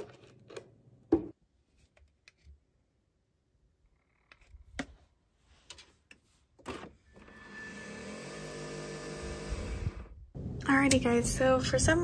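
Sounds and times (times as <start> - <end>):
milk frother motor humming: 7.2 - 10.1.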